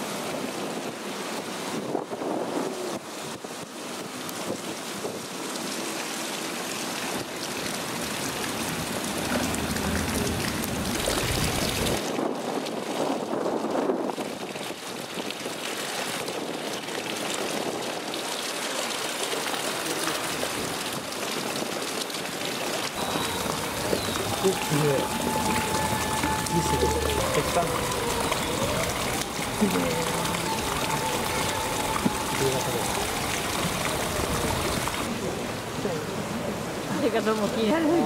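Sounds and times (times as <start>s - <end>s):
rushing water: 0.0s - 38.0s
wind: 0.0s - 38.0s
wind buffeting microphone: 8.5s - 18.4s.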